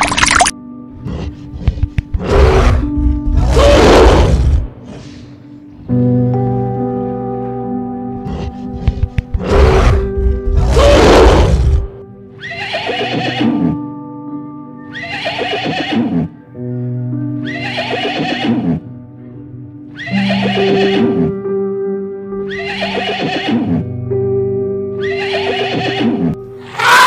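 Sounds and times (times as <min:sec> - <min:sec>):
background music with held notes: 0:00.0 - 0:27.0
horse neighing: 0:12.4 - 0:13.8, 0:14.9 - 0:16.3, 0:17.4 - 0:18.8, 0:20.0 - 0:21.4, 0:22.5 - 0:23.9, 0:25.0 - 0:26.4.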